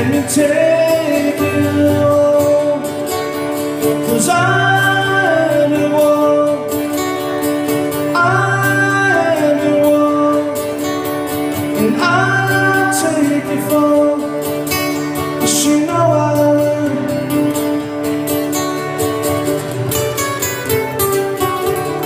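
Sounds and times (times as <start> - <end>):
person singing: 0.0 - 6.9, 7.9 - 11.0, 11.6 - 14.6
acoustic guitar strumming: 0.0 - 22.0.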